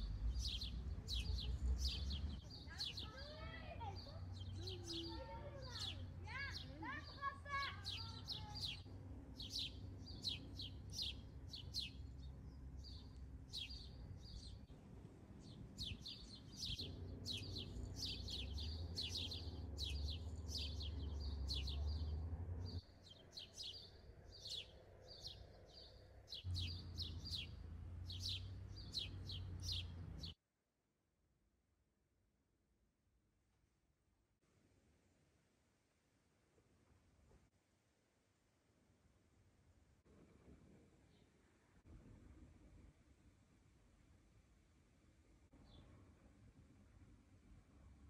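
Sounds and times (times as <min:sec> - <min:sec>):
low steady rumble: 0:00.0 - 0:02.4
songbirds chirping: 0:00.0 - 0:30.4, 0:45.5 - 0:48.0.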